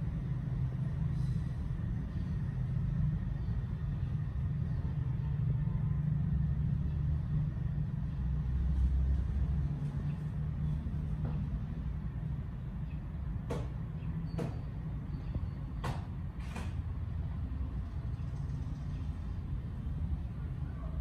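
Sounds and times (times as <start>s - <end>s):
low steady rumble: 0.0s - 14.1s.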